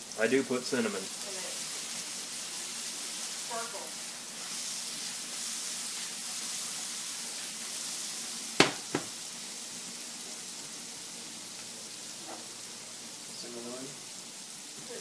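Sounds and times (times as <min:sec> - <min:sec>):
food sizzling in a skillet: 0:00.0 - 0:15.0
sharp knocks: 0:08.6 - 0:09.1.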